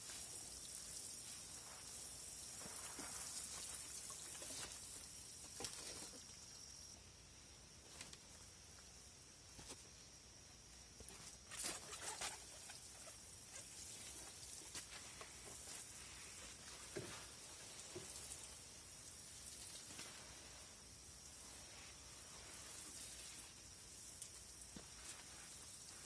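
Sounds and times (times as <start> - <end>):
water sprinkling onto leaves: 0.0 - 5.8, 11.5 - 26.0.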